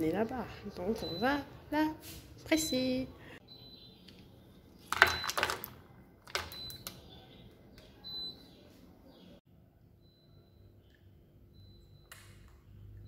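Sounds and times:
kitchen clatters and rattles: 0:04.8 - 0:07.0.

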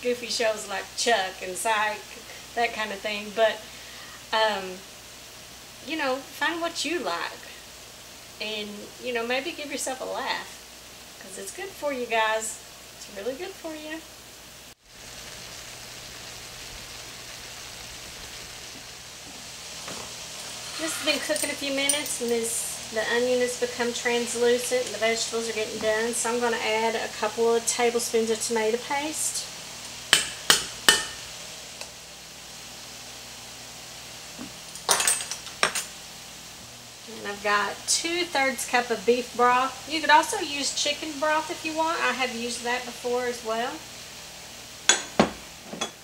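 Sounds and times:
food sizzling in a skillet: 0:00.0 - 0:46.0
spoon tapping a pan: 0:30.1 - 0:31.2, 0:44.9 - 0:46.0.

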